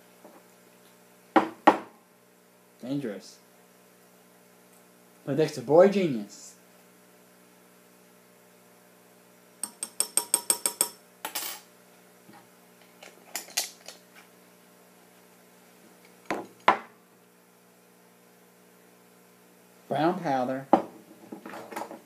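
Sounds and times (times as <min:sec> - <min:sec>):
spoon tapping glass beaker: 0:09.6 - 0:11.0.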